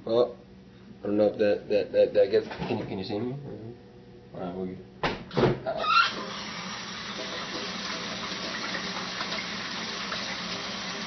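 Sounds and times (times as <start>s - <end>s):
water running from faucet: 5.9s - 11.0s.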